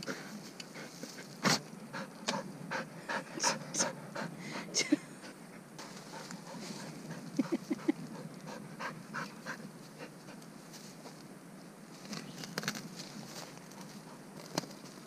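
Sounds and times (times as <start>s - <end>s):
scratching and rustling in leaves: 0.1s - 1.7s, 5.8s - 8.5s, 9.4s - 15.0s
dog panting: 1.9s - 10.4s.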